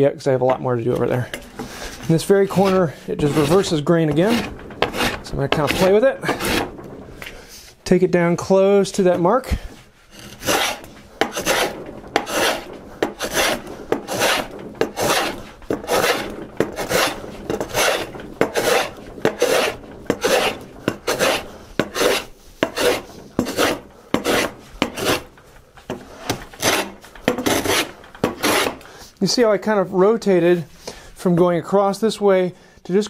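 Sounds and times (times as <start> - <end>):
hand plane shaving wood: 1.6 - 7.4, 10.1 - 28.9.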